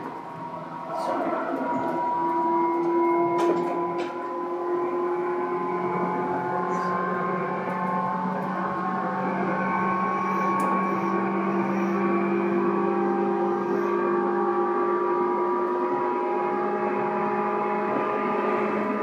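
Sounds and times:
train rolling rumble: 0:00.0 - 0:14.3
train motor whining: 0:00.0 - 0:19.0.

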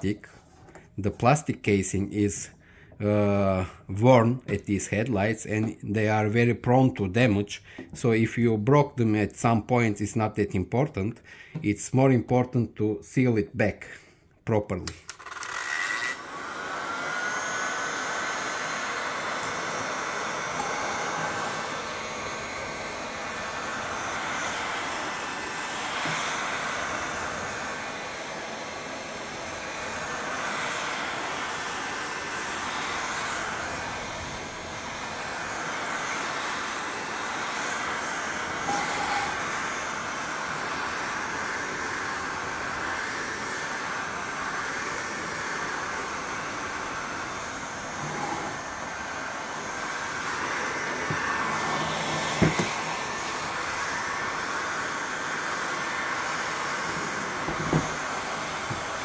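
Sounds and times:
heat gun blowing air: 0:07.7 - 0:08.0, 0:14.8 - 0:59.0.

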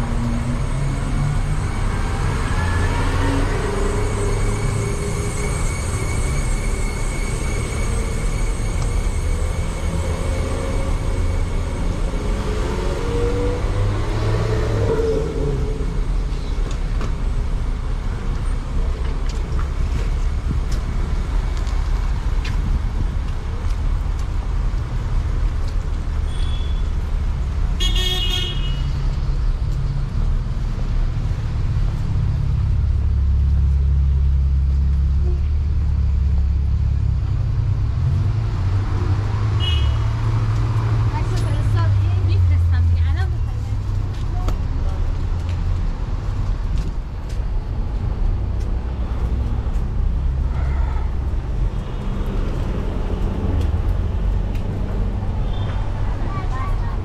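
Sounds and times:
vehicle engines passing: 0:00.0 - 0:27.8, 0:28.4 - 0:57.0
car horn toot: 0:39.6 - 0:40.0.

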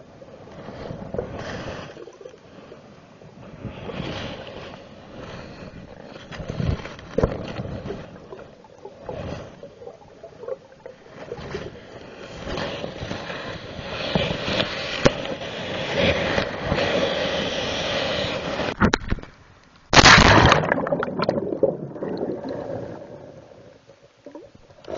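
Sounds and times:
muffled rushing water: 0:19.9 - 0:24.9.

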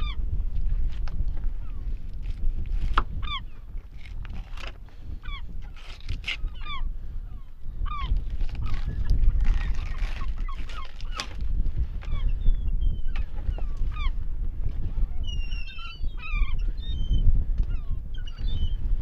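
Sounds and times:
steady low rumble: 0:00.0 - 0:19.0
gulls calling: 0:05.1 - 0:11.4.

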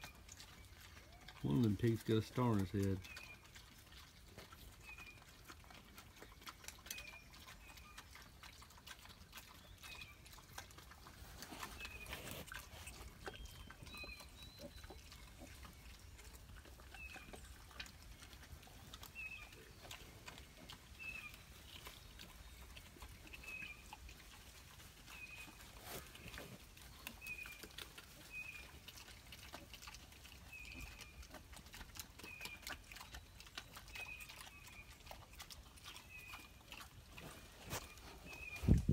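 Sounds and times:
piglets squeaking: 0:00.0 - 0:24.0
scuffling in sand: 0:37.3 - 0:38.9.

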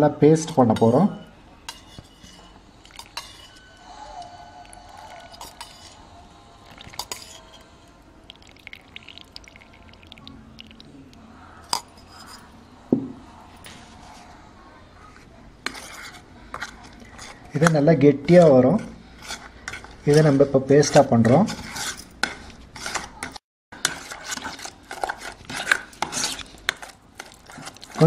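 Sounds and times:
metal spoon clinking against bowl: 0:00.4 - 0:06.0, 0:06.6 - 0:07.7.

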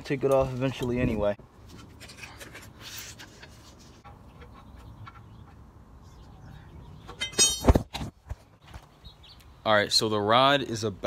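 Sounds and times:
metal parts clicking on pavement: 0:07.0 - 0:07.8.

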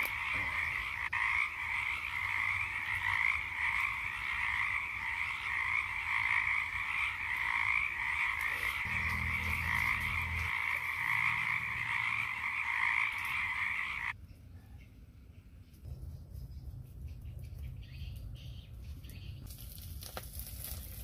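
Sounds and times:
frogs croaking chorus: 0:00.0 - 0:14.2.

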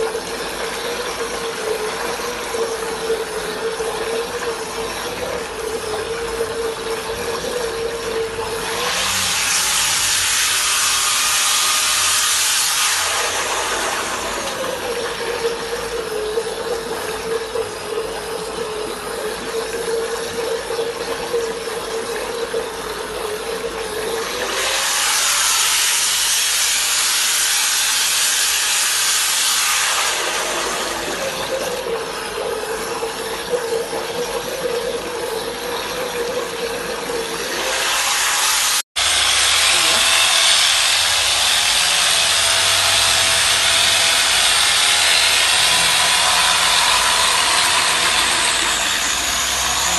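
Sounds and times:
water churning and splashing: 0:00.0 - 0:49.9
power tool motor whining: 0:37.5 - 0:49.9.

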